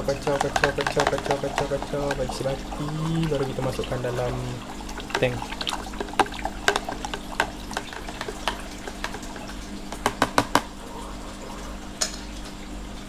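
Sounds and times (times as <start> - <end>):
aquarium pump hum: 0.0 - 13.0
stick clicking against plastic tub: 0.1 - 2.4, 5.0 - 10.7.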